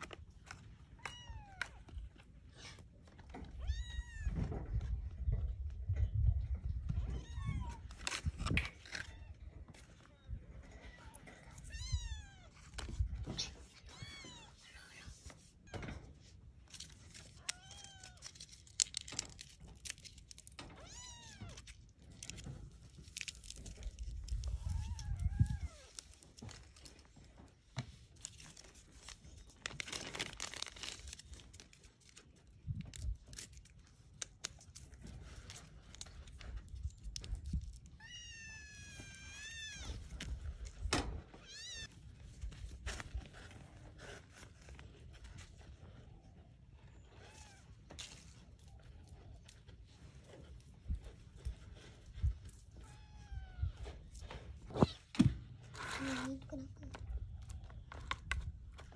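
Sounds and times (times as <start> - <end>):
plastic bag rustling: 16.6 - 45.3.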